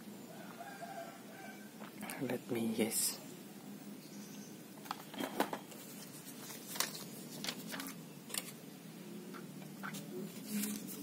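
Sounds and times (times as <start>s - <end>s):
cardboard box and paper rustling: 5.7s - 8.6s, 9.9s - 11.0s.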